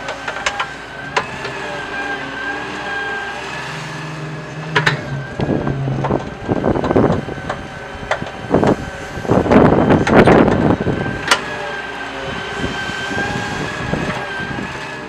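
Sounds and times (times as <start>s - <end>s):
excavator engine humming: 0.0s - 15.0s
hydraulic whine: 0.0s - 15.0s
metal clanks: 4.6s - 8.4s.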